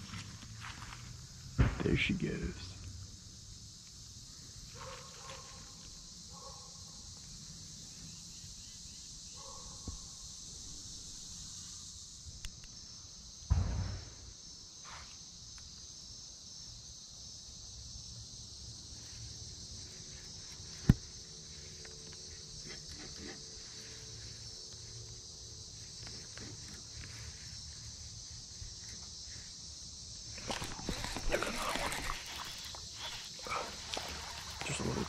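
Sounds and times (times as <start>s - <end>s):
insects chirring: 0.0s - 35.0s
dull thump: 1.6s - 1.9s, 13.5s - 14.3s, 20.8s - 21.1s.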